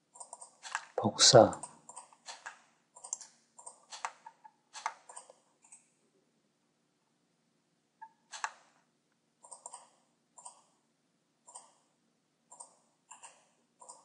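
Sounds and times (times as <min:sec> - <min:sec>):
faint computer mouse clicks: 0:01.6 - 0:05.9, 0:08.3 - 0:08.6, 0:12.5 - 0:14.0.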